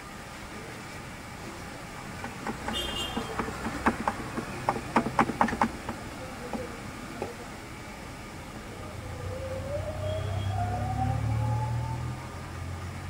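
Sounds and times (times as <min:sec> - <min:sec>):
irregular knocks and clatters: 0:02.2 - 0:07.3.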